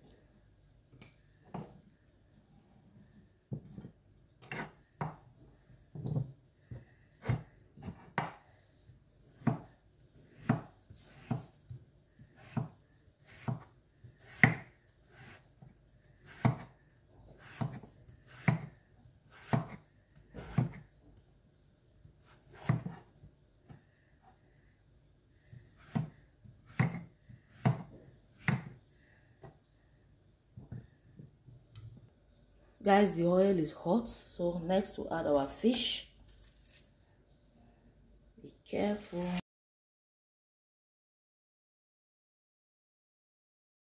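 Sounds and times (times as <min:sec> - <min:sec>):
knife slicing potato: 0:10.3 - 0:20.9, 0:22.2 - 0:23.1, 0:25.8 - 0:28.8.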